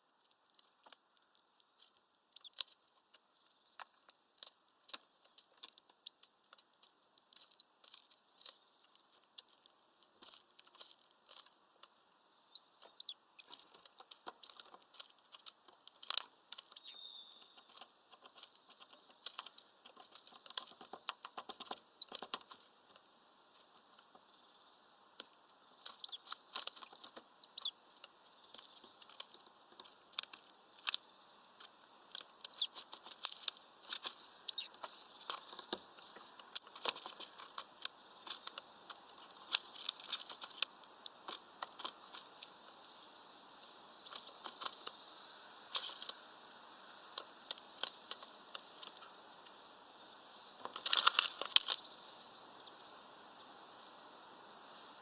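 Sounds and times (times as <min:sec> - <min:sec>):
beaks pecking nuts through netting: 0:00.0 - 0:52.0
faint high bird chirps: 0:00.8 - 0:10.4, 0:11.2 - 0:15.5, 0:16.5 - 0:22.4, 0:23.6 - 0:29.5, 0:30.7 - 0:32.9, 0:34.0 - 0:46.1.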